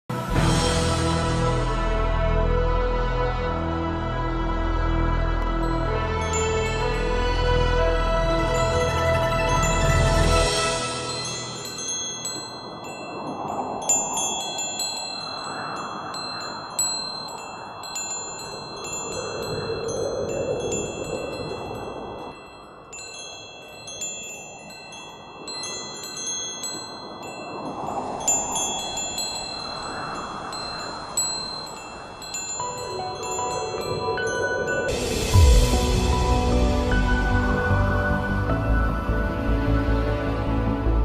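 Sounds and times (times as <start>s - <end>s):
wind gusts rushing: 5.2s - 41.0s
metal wind chimes tinkling: 5.6s - 35.7s.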